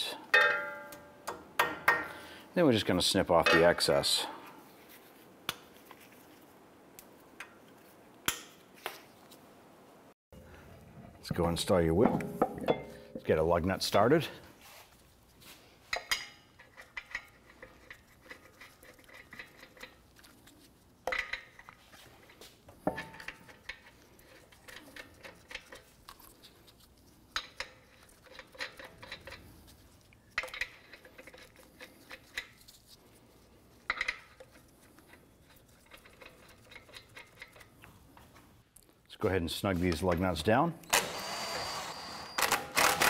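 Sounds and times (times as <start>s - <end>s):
sharp metal clink: 0.3s - 2.1s.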